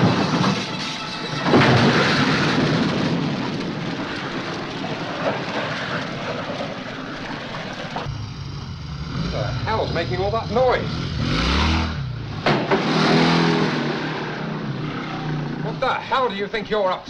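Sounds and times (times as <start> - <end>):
loud explosion blast: 0.0 - 6.4
long rumble: 1.4 - 13.6.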